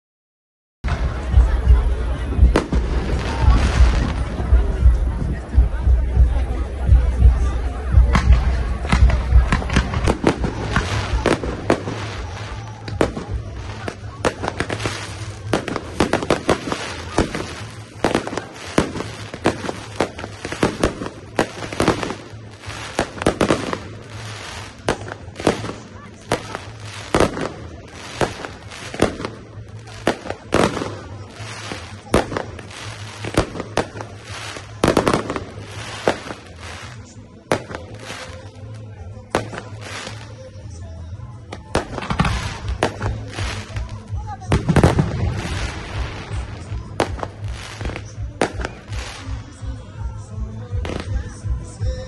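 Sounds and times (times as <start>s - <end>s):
fireworks bursting with bangs: 0.8s - 52.0s
fireworks crackling: 0.8s - 52.0s.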